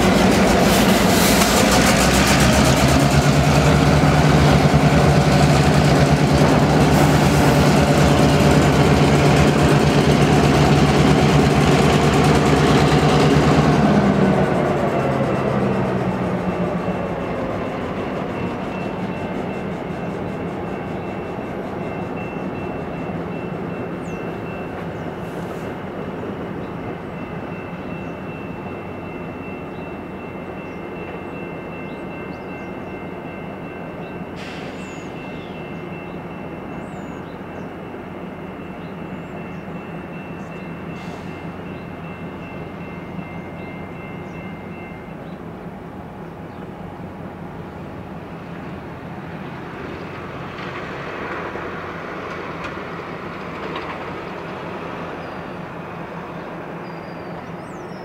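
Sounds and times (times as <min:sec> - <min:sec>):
diesel locomotives running: 0:00.0 - 0:58.0
train wheels rolling on rails: 0:00.0 - 0:58.0.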